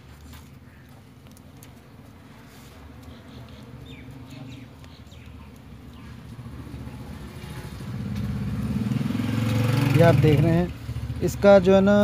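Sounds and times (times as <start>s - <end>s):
vehicle engine droning: 3.0s - 12.0s.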